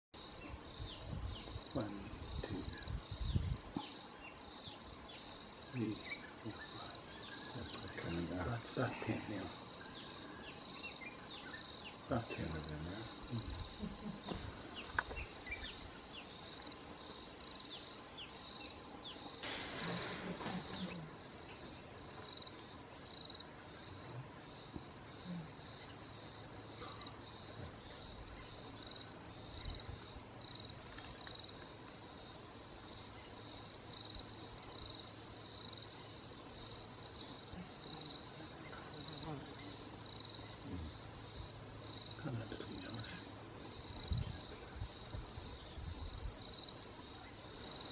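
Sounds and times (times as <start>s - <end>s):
insect chirping: 0.2s - 47.9s
brief rush of noise: 19.4s - 20.8s.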